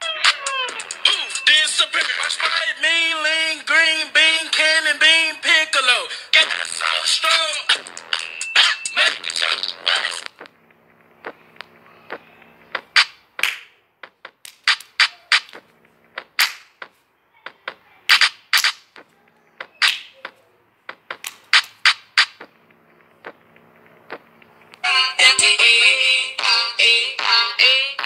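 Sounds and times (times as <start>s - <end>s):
sharp clicks and slaps: 10.3s - 24.8s.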